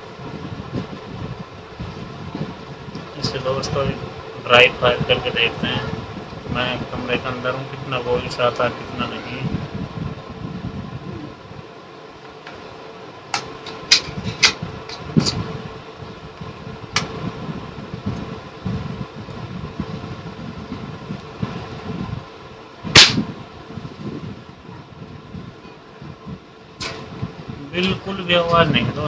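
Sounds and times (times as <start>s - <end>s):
air rifle dry-firing: 22.9s - 23.2s
air rifle clicks: 23.0s - 23.2s.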